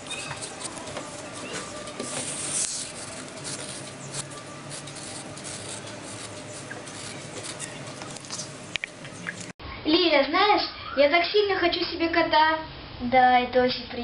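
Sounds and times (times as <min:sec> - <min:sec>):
pencil scratching on paper: 0:00.0 - 0:08.3.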